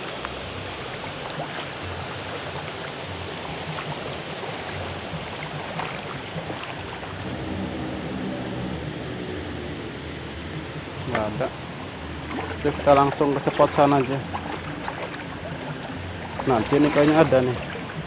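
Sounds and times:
river water running: 0:00.0 - 0:18.0
splashing of person wading: 0:01.1 - 0:07.2, 0:12.2 - 0:18.0.

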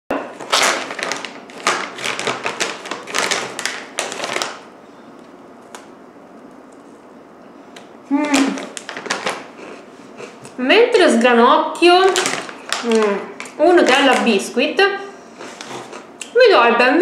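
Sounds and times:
biscuit crunch: 0:00.1 - 0:04.7
plastic pouch crinkling: 0:00.3 - 0:04.7, 0:08.3 - 0:09.8, 0:12.0 - 0:14.5.

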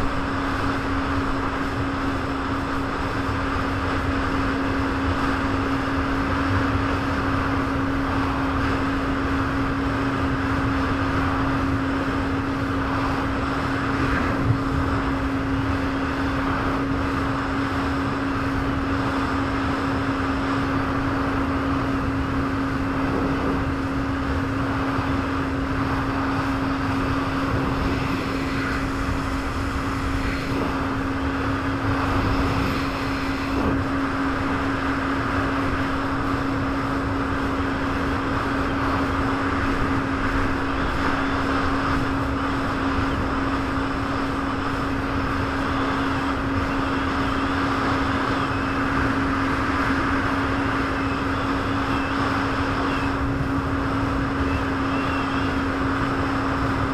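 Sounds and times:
jet ski engine droning: 0:00.0 - 0:56.9
rushing water noise: 0:00.0 - 0:56.9.

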